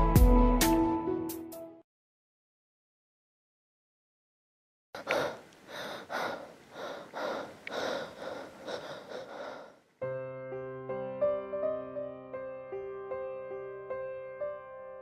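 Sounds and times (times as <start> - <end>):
piano playing: 0.0 - 1.8, 10.0 - 15.0
person breathing hard and gasping: 5.0 - 9.9.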